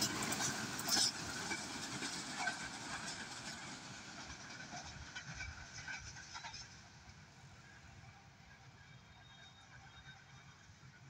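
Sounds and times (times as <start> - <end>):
train clatter: 0.0 - 8.2
train wheels on rails: 0.0 - 11.0.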